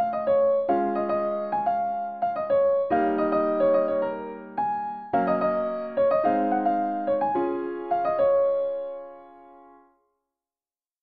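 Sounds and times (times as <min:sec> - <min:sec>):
solo piano melody: 0:00.0 - 0:10.0.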